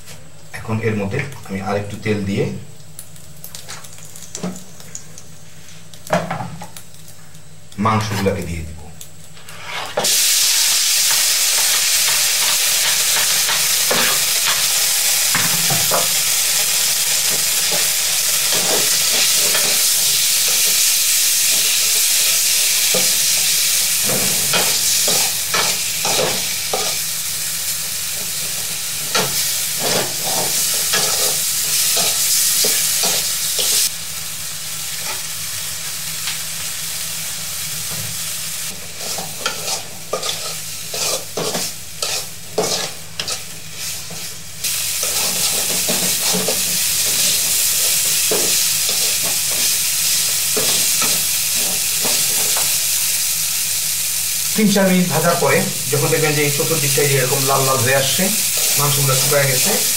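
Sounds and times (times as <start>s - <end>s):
meat sizzling in hot oil: 1.4s - 7.8s, 9.0s - 59.9s
metal spatula scraping a wok: 9.4s - 10.1s, 38.7s - 44.3s.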